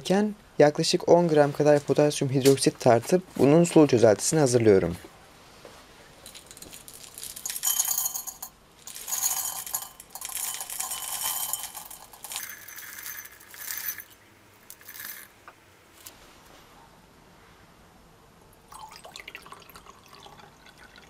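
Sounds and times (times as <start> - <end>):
flakes rattling into glass beaker: 6.2 - 15.4.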